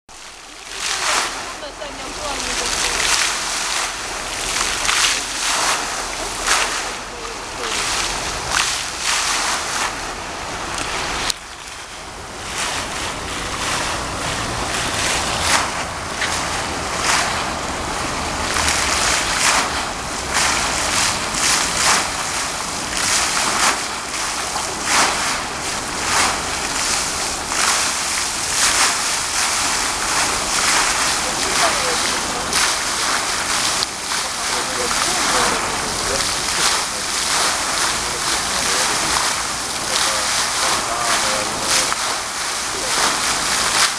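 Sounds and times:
fountain water jets splashing: 0:00.1 - 0:43.9.

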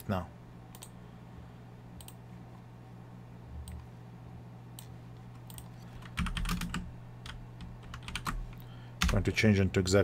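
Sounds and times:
typing on computer keyboard: 0:05.5 - 0:08.4.

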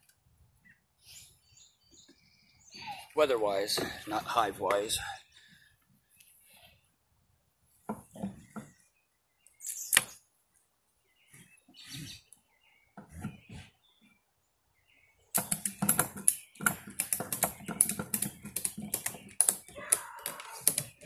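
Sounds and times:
ratchet strap clicking: 0:15.4 - 0:21.0
strap and buckle handling knocks: 0:15.4 - 0:21.0.

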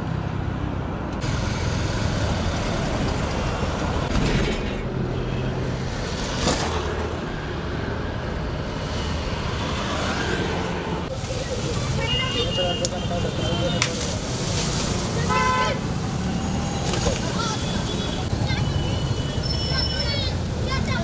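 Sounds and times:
auto-rickshaw engines: 0:00.0 - 0:21.0
motorcycle engines: 0:00.0 - 0:21.0
road noise: 0:00.0 - 0:21.0.

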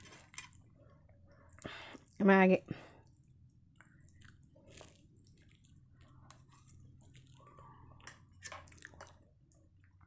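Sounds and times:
person chewing noodles: 0:03.0 - 0:09.9.

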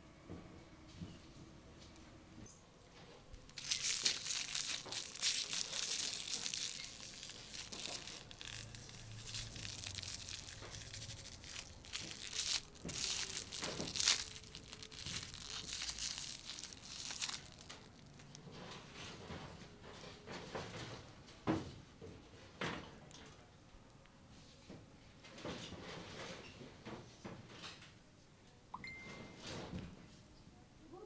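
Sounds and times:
aluminium foil crinkling: 0:03.4 - 0:18.9.

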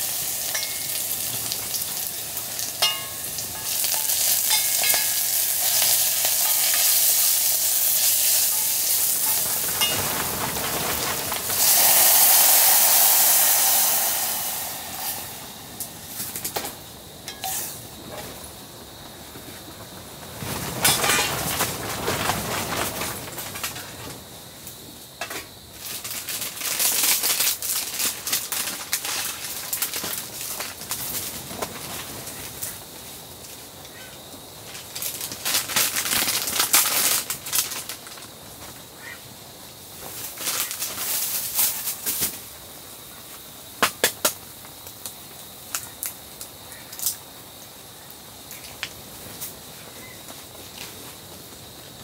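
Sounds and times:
noodles boiling in a pot: 0:00.0 - 0:52.0
plastic packet crinkling and tearing: 0:25.8 - 0:31.3, 0:34.9 - 0:38.3.

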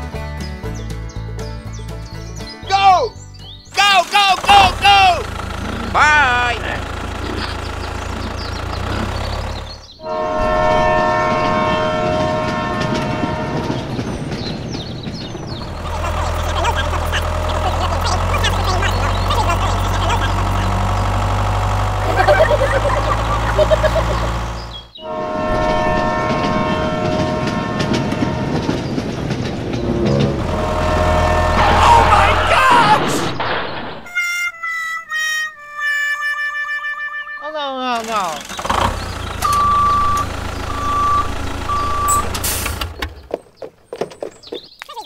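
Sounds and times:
low engine hum: 0:03.2 - 0:32.9, 0:37.9 - 0:43.4
wheels clattering on rails: 0:03.7 - 0:34.2, 0:37.9 - 0:45.0
train horn: 0:10.0 - 0:14.1, 0:25.0 - 0:29.0, 0:29.8 - 0:33.0.

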